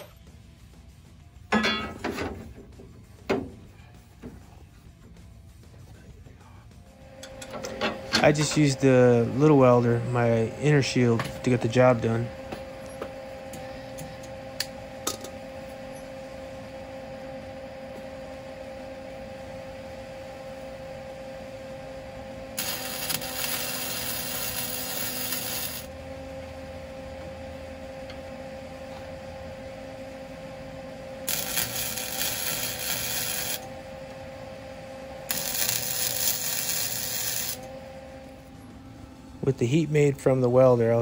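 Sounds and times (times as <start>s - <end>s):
steady welder hum: 0.0s - 41.0s
welding arc crackling: 22.5s - 26.0s, 31.2s - 34.2s, 35.1s - 37.8s.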